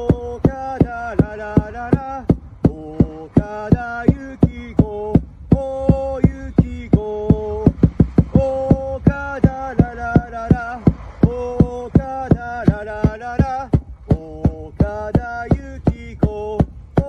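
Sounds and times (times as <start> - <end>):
football supporters chanting: 0.0 - 16.7
drum beats: 0.0 - 17.0.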